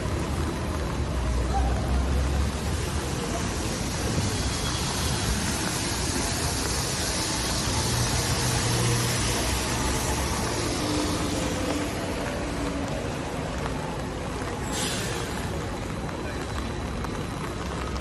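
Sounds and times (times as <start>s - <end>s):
low rumble of engines: 0.0s - 18.0s
tyres hissing on wet road: 0.0s - 18.0s.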